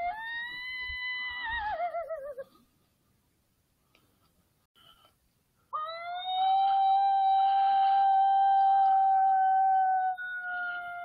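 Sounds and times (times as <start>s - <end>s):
coyote howling: 0.0s - 2.5s, 5.8s - 11.0s.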